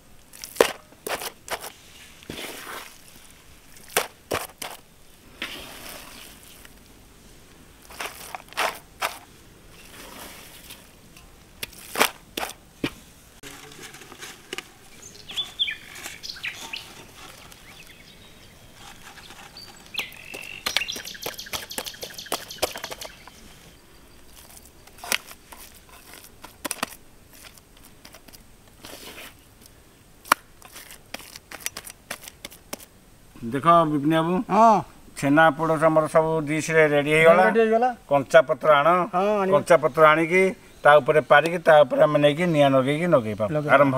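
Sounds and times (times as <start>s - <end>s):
knocks and clatters of handling: 7.9s - 9.3s, 10.6s - 17.9s, 18.7s - 23.4s
birds chirping: 14.7s - 25.0s, 38.9s - 43.9s.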